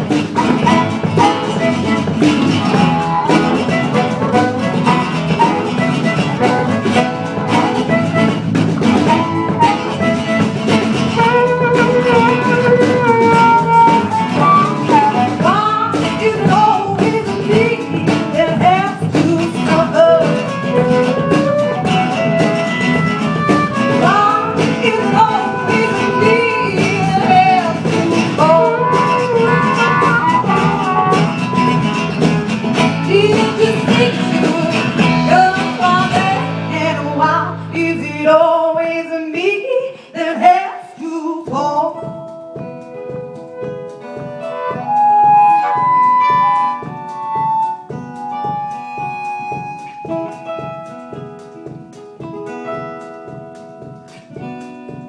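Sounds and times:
drum kit: 0.0s - 38.1s, 40.5s - 55.0s
electric bass: 0.0s - 38.4s
acoustic guitar: 0.0s - 55.0s.

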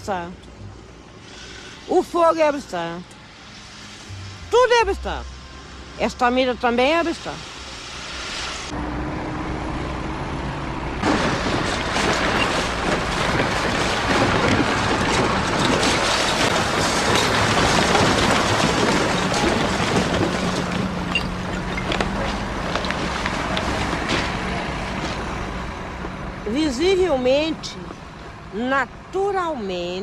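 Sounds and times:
heavy machinery engine rumble: 0.0s - 30.0s
steady engine hum: 0.0s - 30.0s
refuse clanking and rattling: 11.0s - 25.3s.

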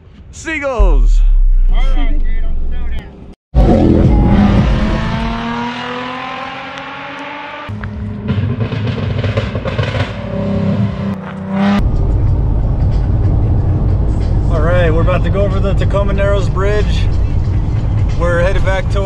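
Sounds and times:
car engine accelerating: 0.9s - 14.4s
engine and road noise in car: 2.8s - 19.0s.

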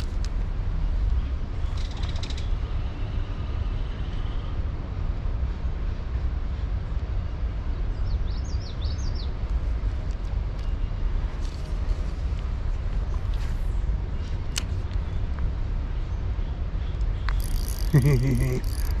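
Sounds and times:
small bird chirping: 17.2s - 19.0s
fishing reel whirring: 17.4s - 19.0s.

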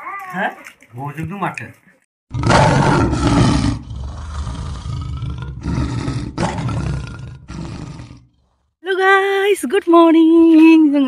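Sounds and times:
lion roaring: 2.3s - 8.6s.

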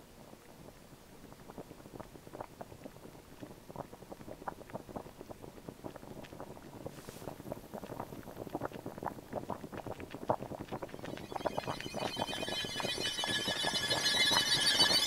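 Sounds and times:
liquid sizzling and bubbling: 1.3s - 15.0s.

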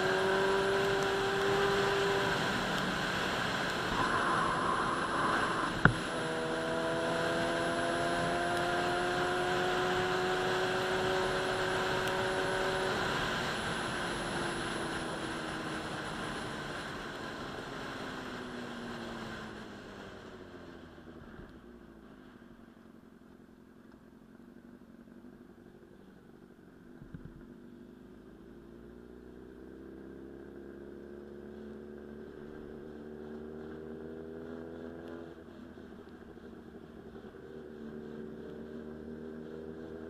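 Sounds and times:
motorcycle engine running: 0.0s - 40.0s
wind rushing: 3.6s - 7.1s.

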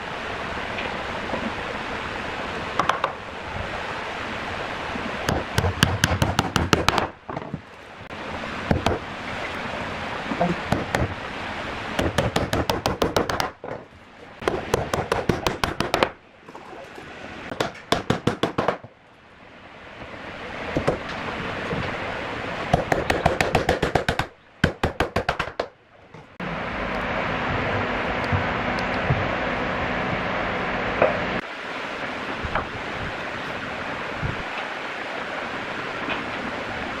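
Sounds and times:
rapid knocking bursts: 5.3s - 7.1s, 12.0s - 13.7s, 14.4s - 16.2s, 17.5s - 18.9s, 22.7s - 25.7s.

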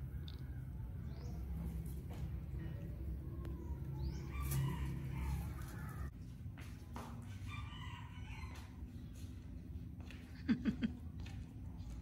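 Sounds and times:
rooster crowing: 4.0s - 6.1s, 7.4s - 8.8s.

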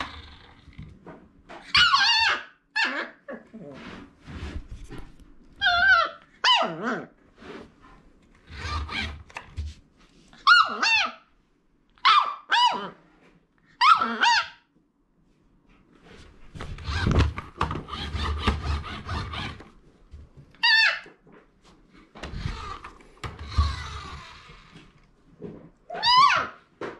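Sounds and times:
puppy yipping and whining: 1.6s - 3.5s, 5.6s - 7.1s, 10.4s - 11.3s, 12.0s - 13.0s, 13.7s - 14.7s, 20.6s - 21.2s, 25.9s - 26.6s.

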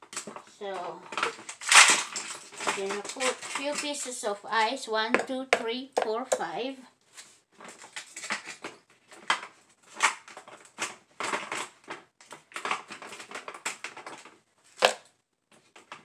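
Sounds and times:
ice cubes cracking in tray: 0.0s - 4.2s.

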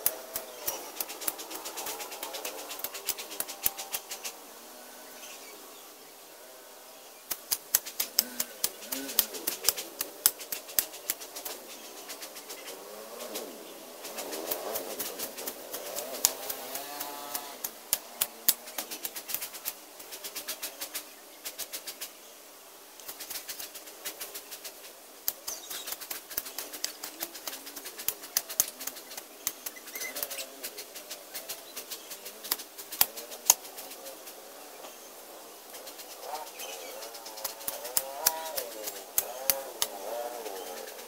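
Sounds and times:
hand tool chopping weeds and soil: 0.0s - 4.3s, 7.3s - 11.9s, 14.1s - 20.8s, 23.0s - 33.9s, 35.9s - 40.8s
bird calling: 0.0s - 5.7s, 7.4s - 22.0s, 23.0s - 41.0s
rustling of cut vegetation: 0.0s - 41.0s.

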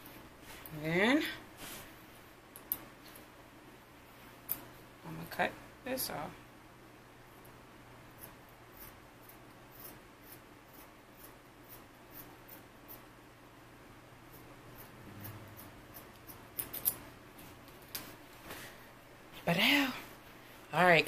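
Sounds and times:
scissors snipping fabric: 14.3s - 17.0s.

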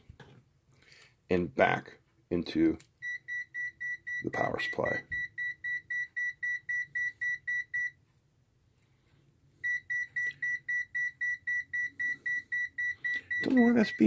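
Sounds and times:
rapid high-pitched beeping: 9.7s - 14.0s.

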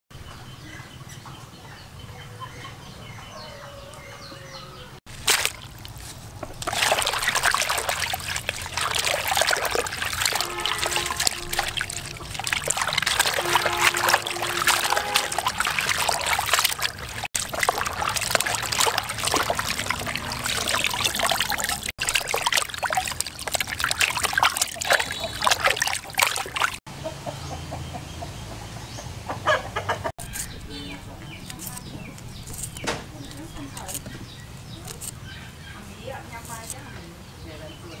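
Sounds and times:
hands splashing water in basin: 5.1s - 26.8s.

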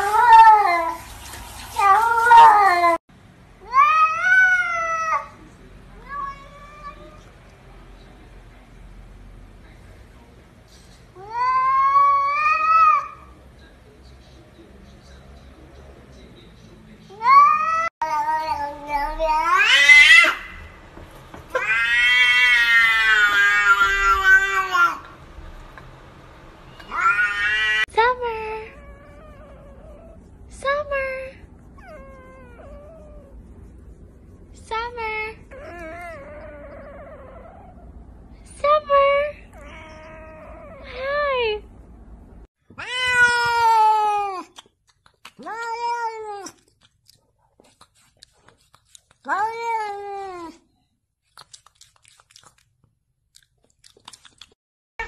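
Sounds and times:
cat meowing: 6.0s - 7.3s, 17.2s - 20.7s, 21.5s - 25.1s, 26.7s - 27.9s, 42.7s - 44.5s.

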